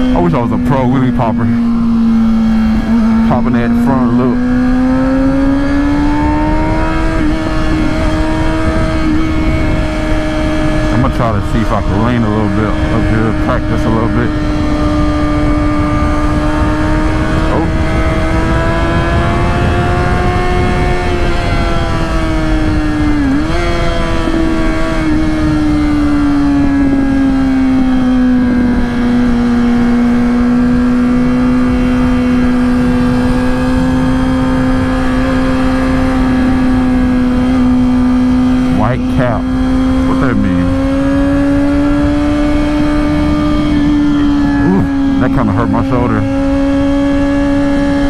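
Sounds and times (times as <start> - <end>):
motorcycle engine cruising: 0.0 - 48.0
wind rushing: 14.5 - 23.2.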